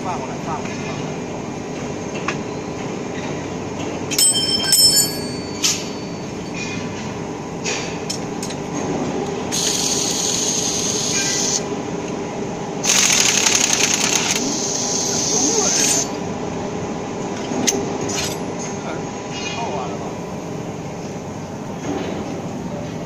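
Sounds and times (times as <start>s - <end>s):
factory machinery hum: 0.0s - 23.0s
handheld power tool running: 12.8s - 16.0s.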